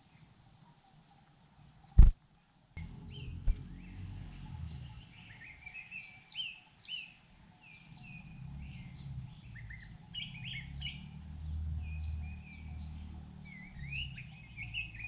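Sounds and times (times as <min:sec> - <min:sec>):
low rumble: 0:02.8 - 0:05.1.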